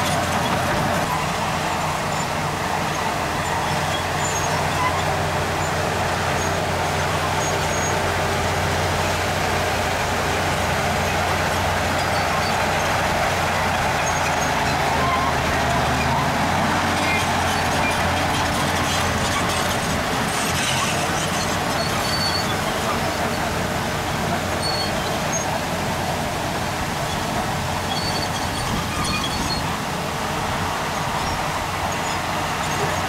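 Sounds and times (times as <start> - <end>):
heavy diesel machinery engine: 0.0 - 33.0
short high squeaks: 2.1 - 5.8, 13.7 - 23.4, 24.5 - 25.6, 27.8 - 29.7, 31.1 - 33.0.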